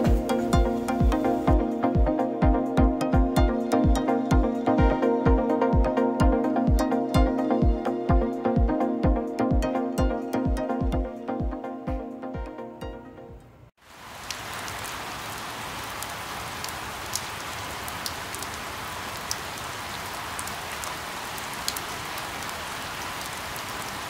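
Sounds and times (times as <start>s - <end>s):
steady rain hiss: 0.0s - 9.0s, 13.8s - 24.0s.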